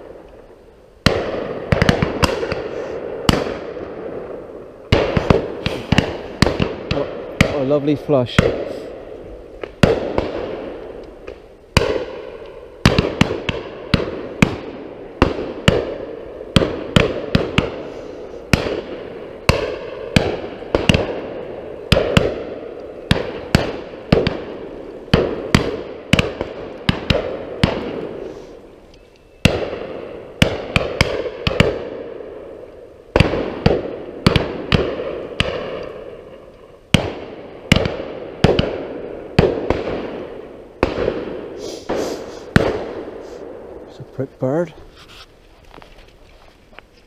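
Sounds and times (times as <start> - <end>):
shotgun shots with echo: 1.0 - 4.2, 4.9 - 10.9, 11.8 - 17.9, 18.5 - 28.4, 29.4 - 32.2, 36.9 - 43.6.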